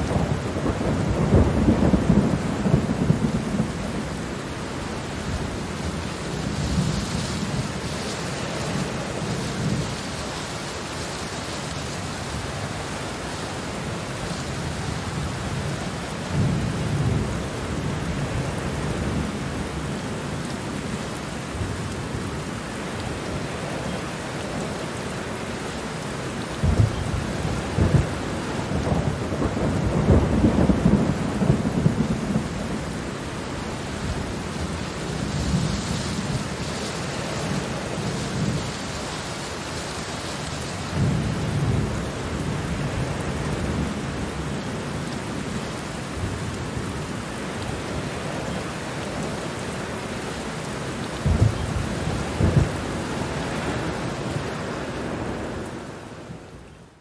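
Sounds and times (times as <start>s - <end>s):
distant thunder rumbling: 0.0s - 4.4s, 26.6s - 38.8s, 51.2s - 55.7s
steady rain falling: 0.0s - 57.0s.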